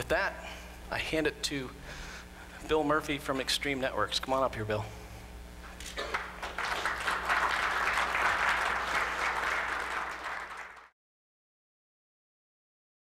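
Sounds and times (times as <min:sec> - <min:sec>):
audience applauding: 0:06.0 - 0:10.9.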